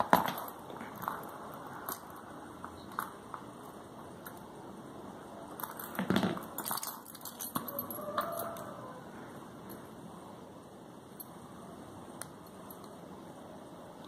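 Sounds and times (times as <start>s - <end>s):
keys jangling on keyring: 5.6s - 8.7s.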